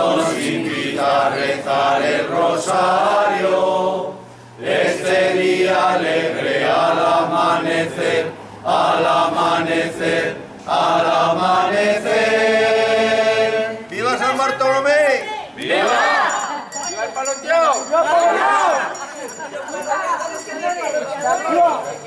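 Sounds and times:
group of voices chanting: 0.0s - 13.8s, 15.6s - 16.7s.

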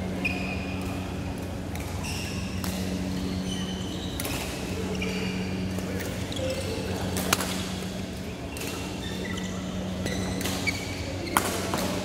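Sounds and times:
steady low hum: 0.0s - 12.0s
shoes squeaking on court: 2.0s - 6.9s, 8.5s - 12.0s.

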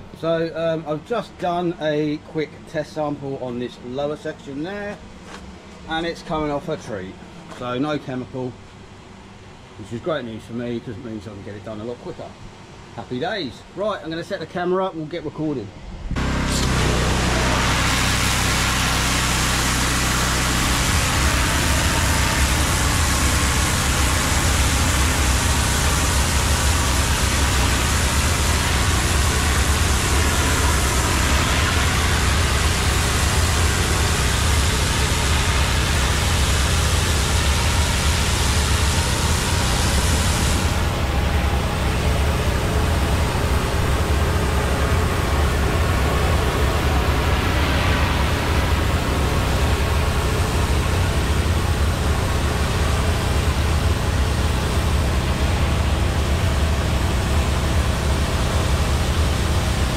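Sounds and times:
low engine hum: 15.8s - 59.9s
water jet hissing on brick: 16.3s - 59.9s.

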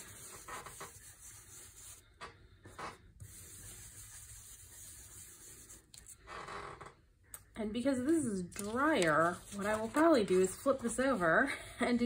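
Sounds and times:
brush rubbing on paper: 0.0s - 2.2s, 3.2s - 6.2s, 9.0s - 11.4s.

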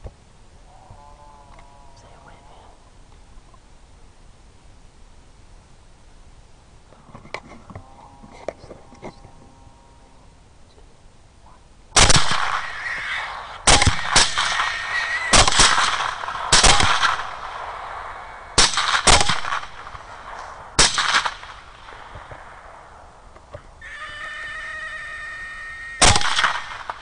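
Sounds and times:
rifle shots with echo: 12.0s - 23.0s, 26.0s - 27.0s
hog squealing: 12.6s - 13.4s, 14.6s - 15.5s, 23.8s - 26.3s.

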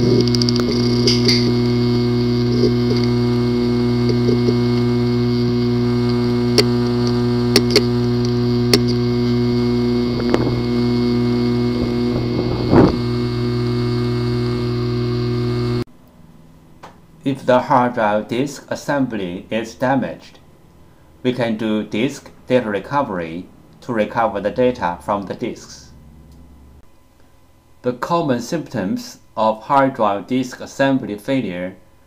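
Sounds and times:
hard drive clicking: 0.0s - 15.8s
hard drive humming: 0.0s - 17.2s.

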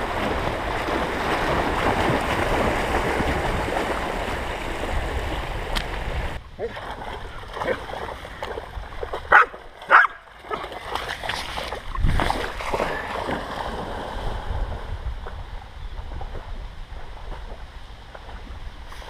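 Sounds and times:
dog splashing through water: 0.0s - 5.6s, 6.6s - 14.2s
dog barking: 9.3s - 10.6s.

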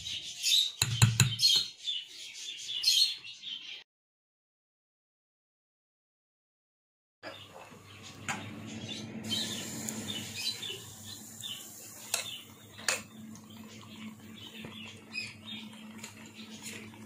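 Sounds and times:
batter sizzling in hot oil: 9.2s - 17.0s.

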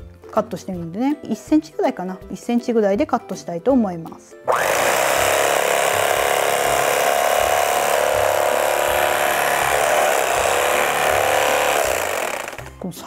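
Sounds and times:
electric knife sawing bread: 4.5s - 12.8s.

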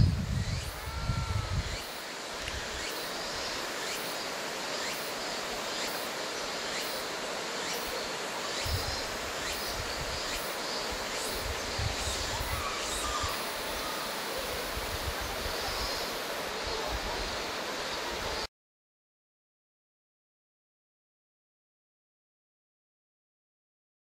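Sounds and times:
wind buffeting microphone: 0.0s - 1.8s
flowing river water: 0.7s - 18.5s.

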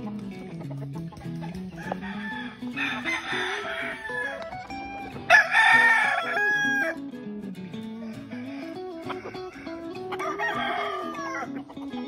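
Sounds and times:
guitar music: 0.0s - 12.0s
rooster crowing: 1.8s - 7.0s, 8.0s - 11.6s.

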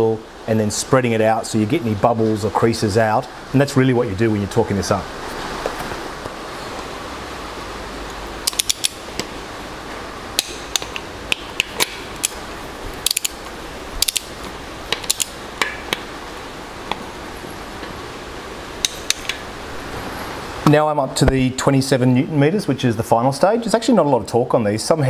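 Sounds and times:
torque wrench ratcheting and clicking: 8.4s - 9.0s, 13.0s - 13.4s, 14.0s - 14.3s, 14.9s - 15.7s.

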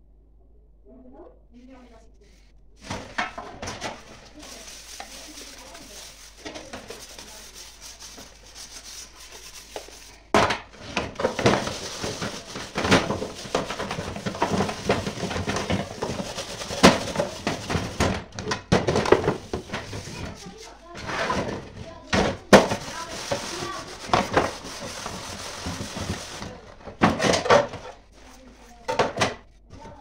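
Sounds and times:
sponge scrubbing metal: 2.8s - 26.8s.

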